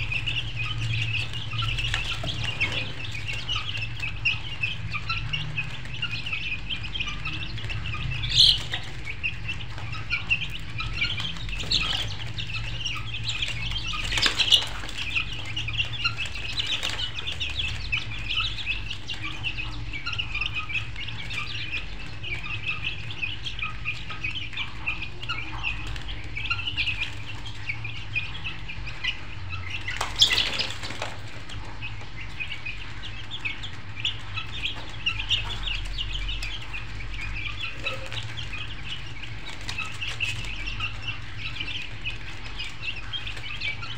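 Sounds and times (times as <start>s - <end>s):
birds chirping: 0.0s - 43.9s
steady low hum: 0.0s - 43.9s.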